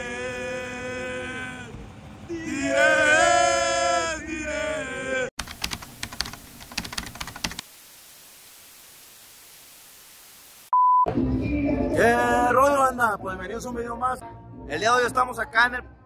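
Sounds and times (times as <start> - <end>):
keyboard typing clicks: 5.4 - 7.6
faint steady hiss: 5.4 - 10.8.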